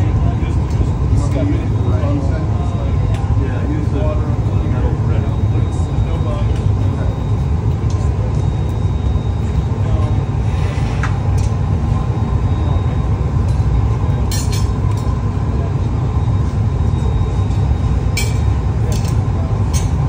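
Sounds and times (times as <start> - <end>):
gas furnace roaring: 0.0 - 20.0
light glass clinks: 14.3 - 15.0, 18.1 - 20.0.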